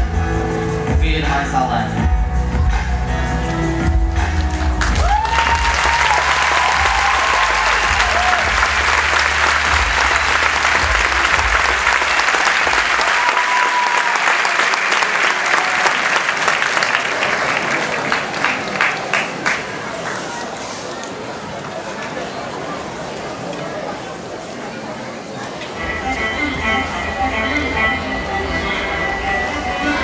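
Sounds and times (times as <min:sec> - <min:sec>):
music: 0:00.0 - 0:13.2, 0:25.8 - 0:30.0
audience applauding: 0:04.4 - 0:20.9
cheering shouts: 0:05.0 - 0:18.7.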